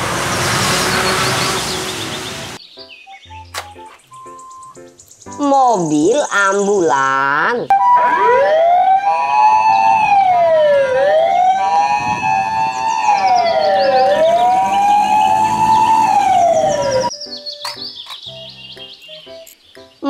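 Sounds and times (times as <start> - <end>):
wailing siren: 7.7 - 17.1
two-tone ambulance siren: 7.7 - 17.2.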